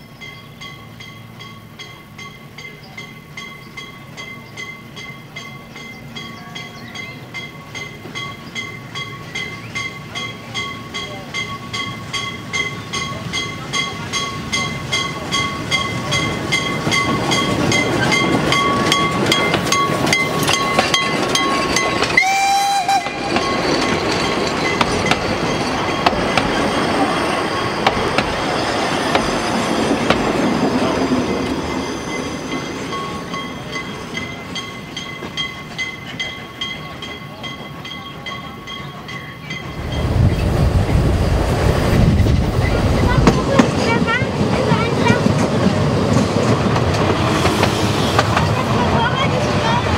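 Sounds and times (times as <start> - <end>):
low rumble aboard train: 0.0 - 49.9
steam locomotive working: 0.0 - 49.9
wheels clicking over rail joints: 0.2 - 31.6
train whistle blast: 22.2 - 23.4.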